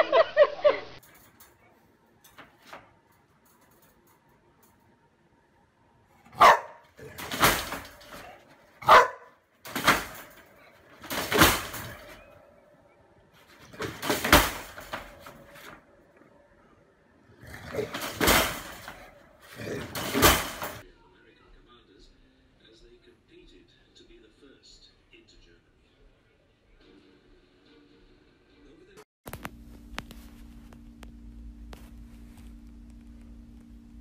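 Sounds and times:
dog barking: 0:06.2 - 0:07.2, 0:08.2 - 0:09.4.

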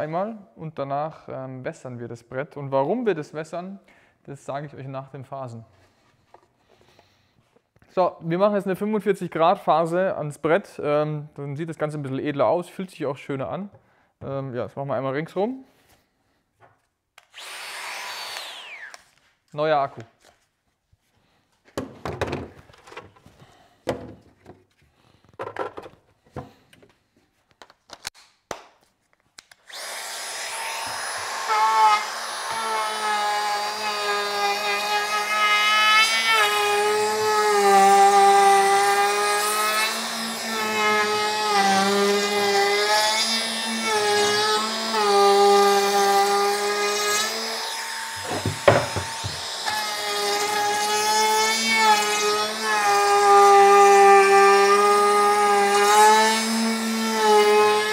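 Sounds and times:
router cutting wood: 0:17.3 - 0:19.1, 0:29.6 - 0:57.9.

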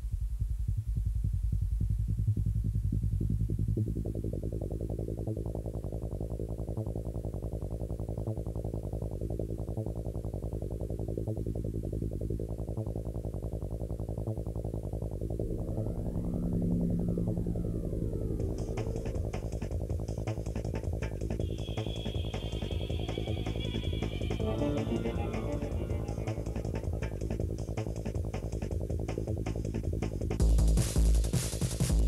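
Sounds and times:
low sustained synth tones: 0:09.1 - 0:28.3
electronic pulsing beat: 0:15.4 - 0:32.0.

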